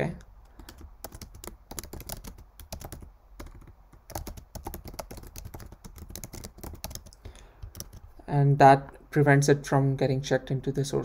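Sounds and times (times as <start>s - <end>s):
typing on computer keyboard: 0.4s - 8.1s.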